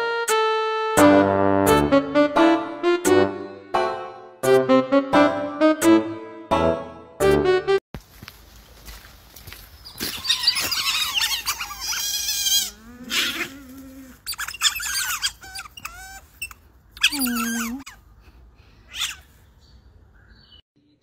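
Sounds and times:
otters squeaking and chirping: 0:09.8 - 0:13.6, 0:14.2 - 0:18.0, 0:18.9 - 0:19.3.

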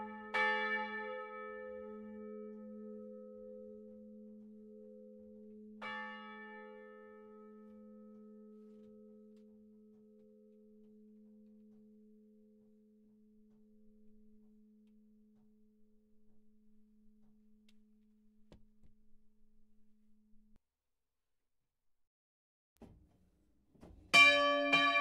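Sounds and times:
church bell hum: 0:00.0 - 0:10.7, 0:24.1 - 0:25.0.

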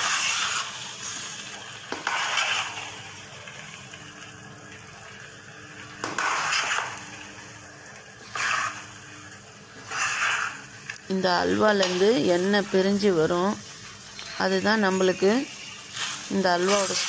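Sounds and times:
spatula scraping pan: 0:00.0 - 0:01.2, 0:02.0 - 0:02.9, 0:06.2 - 0:07.0, 0:08.2 - 0:08.9, 0:09.8 - 0:10.7
soft sizzle: 0:00.0 - 0:17.0.

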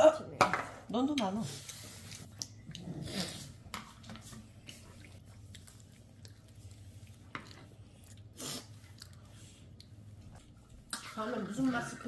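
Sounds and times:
child chewing: 0:01.6 - 0:03.7, 0:04.4 - 0:11.0.

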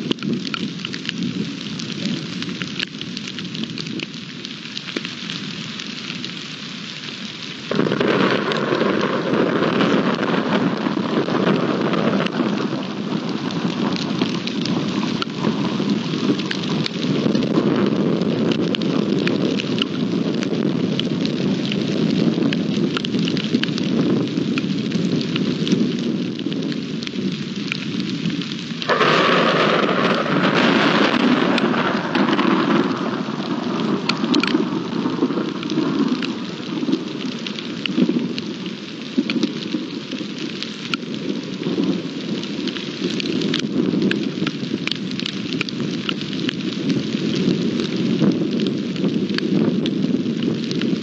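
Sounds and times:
raindrops ticking: 0:00.0 - 0:51.0
steady rain falling: 0:00.0 - 0:51.0
loud thunder crack: 0:07.7 - 0:19.2, 0:28.8 - 0:37.2
low thunder rumble: 0:07.7 - 0:51.0.

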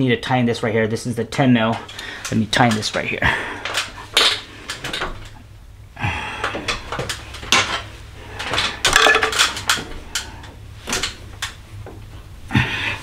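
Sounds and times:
hand tools clinking on metal: 0:06.4 - 0:11.2.

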